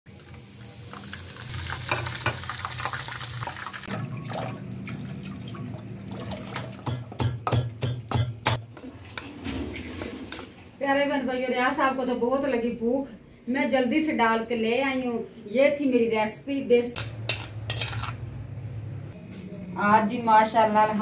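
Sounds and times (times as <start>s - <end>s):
water pouring and splashing: 0.2s - 7.2s, 8.6s - 10.8s.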